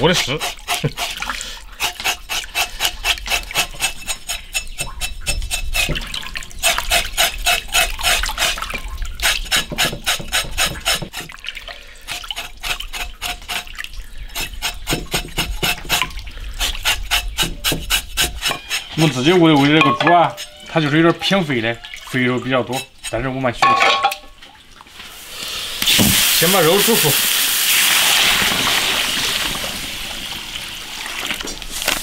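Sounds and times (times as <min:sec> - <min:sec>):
rubbing and splashing in water: 0:00.0 - 0:25.2.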